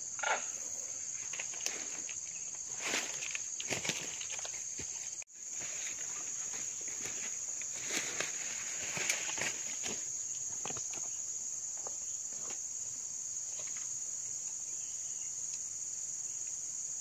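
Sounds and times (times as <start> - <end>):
insects droning: 0.0 - 17.0
leaf litter rustling: 1.1 - 10.2.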